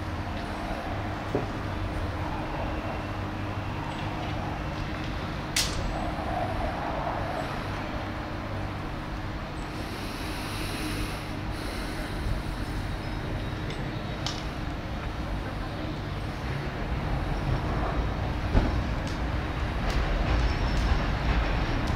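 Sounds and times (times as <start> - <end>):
low hum of city traffic: 0.0 - 21.9
tram running: 0.0 - 21.9.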